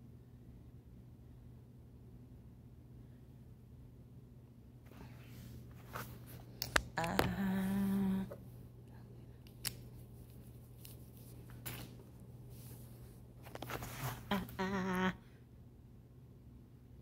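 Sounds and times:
woman humming: 6.8s - 8.5s, 14.2s - 15.3s.

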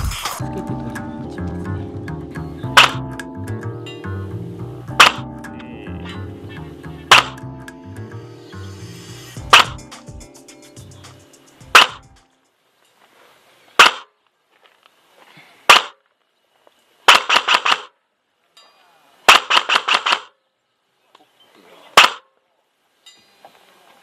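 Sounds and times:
background music: 0.0s - 12.5s
airsoft gun single shots: 2.8s - 3.0s, 5.0s - 5.2s, 7.1s - 7.4s, 9.5s - 9.8s, 11.7s - 12.0s, 13.8s - 14.1s, 15.7s - 16.0s, 17.1s - 18.0s, 19.3s - 20.4s, 22.0s - 22.3s
airsoft gun full-auto bursts: 17.1s - 17.9s, 19.3s - 20.3s.

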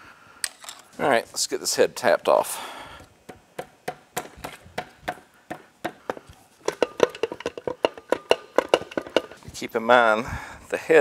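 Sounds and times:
sharp taps on metal: 3.3s - 9.4s.

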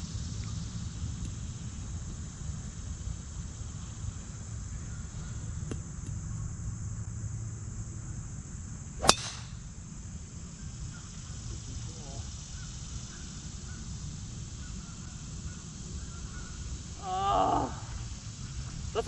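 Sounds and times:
golf club striking ball: 9.0s - 9.6s.

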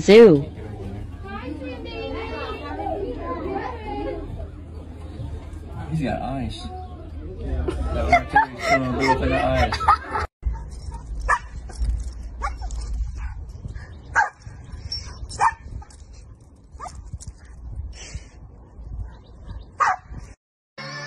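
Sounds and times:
steady low rumble: 0.0s - 20.4s
dog barking and yipping: 10.5s - 13.4s, 14.1s - 15.9s, 19.0s - 20.1s.

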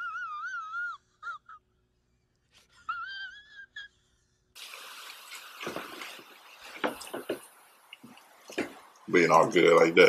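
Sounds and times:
high wavering whimper: 0.0s - 1.6s, 2.6s - 4.2s.

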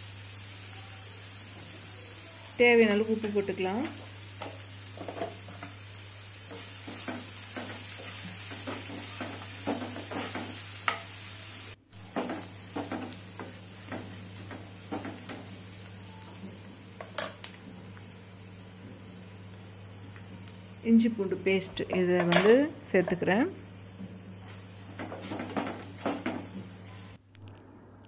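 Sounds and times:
food sizzling in oil: 0.0s - 27.2s
spoon scraping and knocking pan: 3.8s - 5.8s, 6.5s - 11.2s, 12.0s - 15.5s, 24.3s - 26.8s.

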